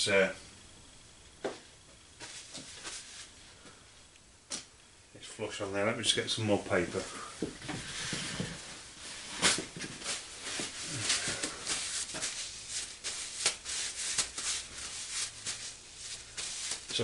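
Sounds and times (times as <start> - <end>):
paper towel crinkling: 2.2 - 3.5, 6.8 - 17.0.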